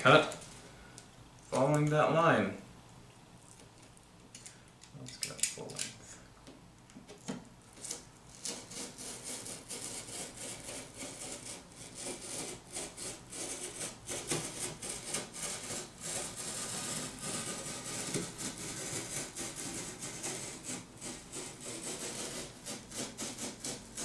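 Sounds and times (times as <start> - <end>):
box cutter slicing cardboard: 7.8 - 24.0.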